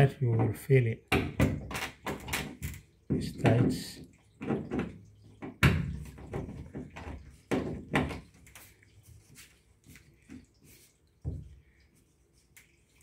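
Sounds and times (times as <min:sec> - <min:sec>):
plastic clicks and knocks: 0:00.3 - 0:03.8.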